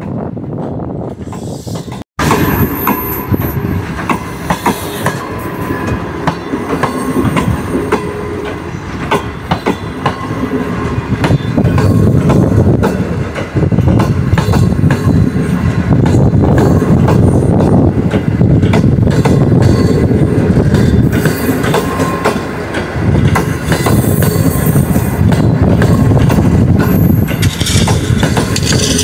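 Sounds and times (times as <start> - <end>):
train coaches rumbling past: 0.0 - 29.0
wheels clattering over rail joints: 25.3 - 29.0.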